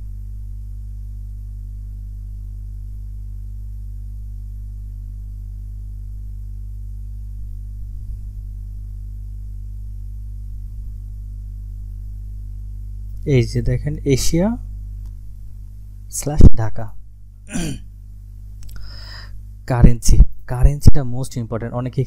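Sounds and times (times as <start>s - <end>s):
low electrical hum: 0.0s - 22.0s.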